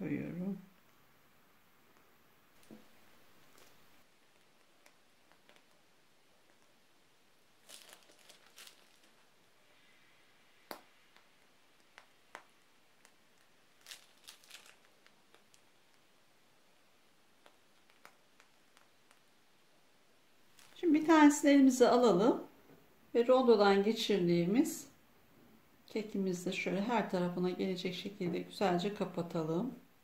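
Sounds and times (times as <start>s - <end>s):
piping bag crinkling: 2.6s - 21.4s.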